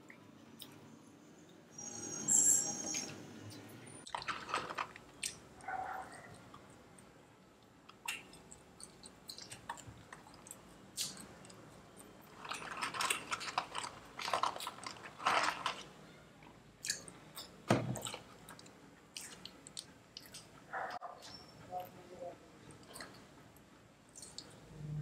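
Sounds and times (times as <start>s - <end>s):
chewing french fries: 4.0s - 22.0s, 22.7s - 24.7s
paper carton rustling: 12.4s - 15.9s.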